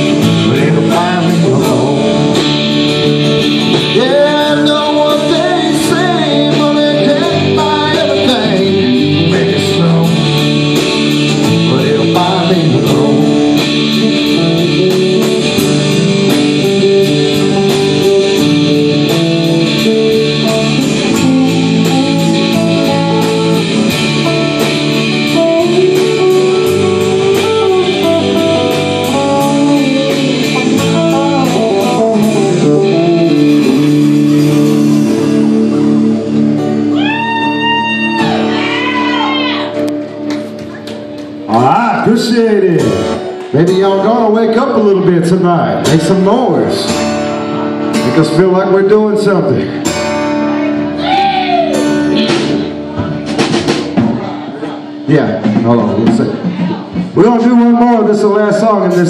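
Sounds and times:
person singing: 0:00.0 - 0:19.2, 0:25.1 - 0:35.6
bass and drums: 0:00.0 - 0:59.0
electric guitars: 0:00.0 - 0:59.0.

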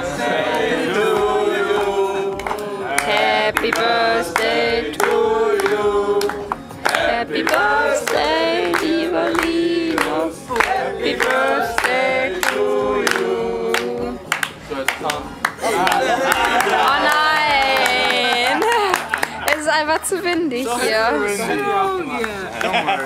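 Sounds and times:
people singing a celebration song: 0:00.0 - 0:23.0
people clapping in time: 0:00.4 - 0:20.5, 0:22.1 - 0:23.0.

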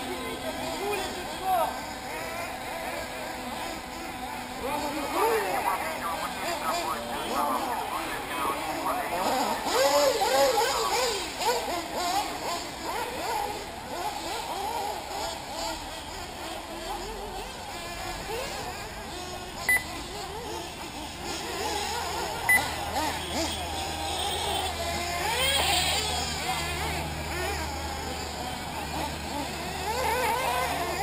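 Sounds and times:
model car engines whining: 0:00.0 - 0:31.0
short electronic beeps: 0:19.7 - 0:19.9, 0:22.5 - 0:22.7.

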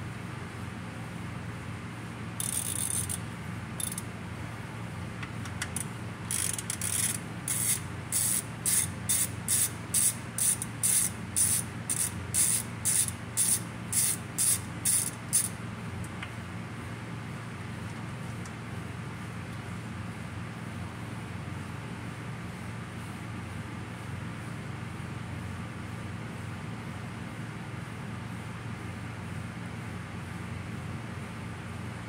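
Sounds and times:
ratchet wrench clicking: 0:02.4 - 0:03.2, 0:03.8 - 0:04.1, 0:05.4 - 0:15.6.

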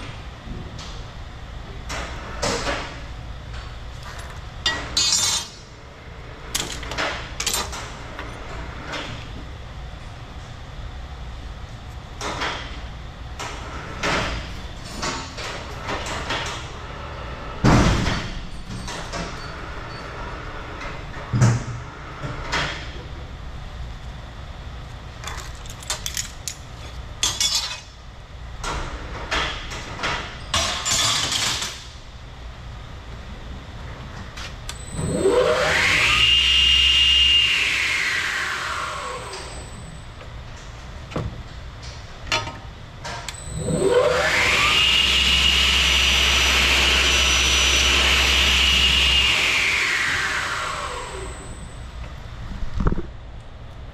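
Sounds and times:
chop saw motor whining: 0:34.9 - 0:39.6, 0:43.5 - 0:51.6.

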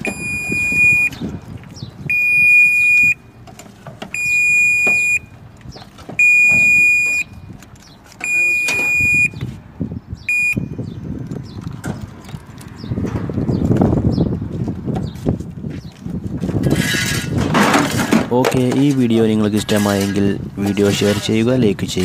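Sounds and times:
high-pitched alarm beeps: 0:00.0 - 0:01.2, 0:02.1 - 0:03.4, 0:04.1 - 0:05.3, 0:06.2 - 0:07.6, 0:08.2 - 0:09.4, 0:10.2 - 0:10.8.

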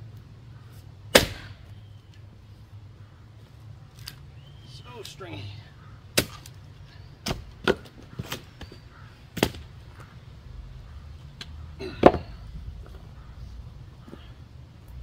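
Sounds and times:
splitting tool chopping firewood: 0:01.1 - 0:01.6, 0:06.1 - 0:06.5.

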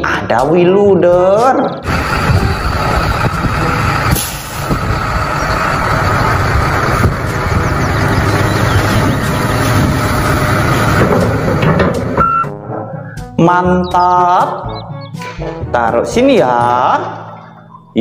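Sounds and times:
heavy vehicle engine running: 0:01.8 - 0:12.5.

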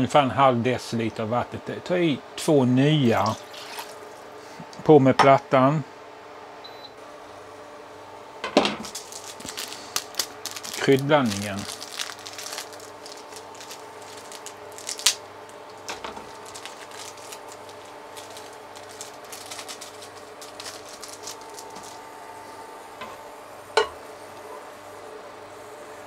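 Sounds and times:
sachet crinkling: 0:08.8 - 0:22.1.

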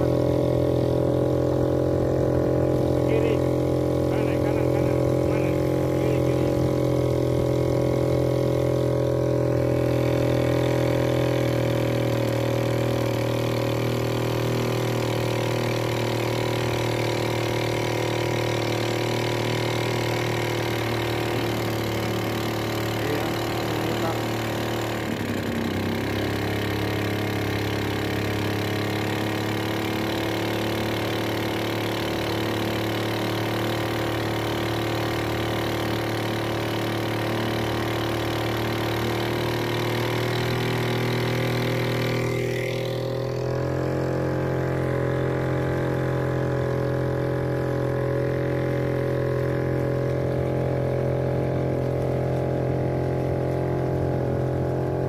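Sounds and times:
small boat engine running: 0:00.0 - 0:55.0.

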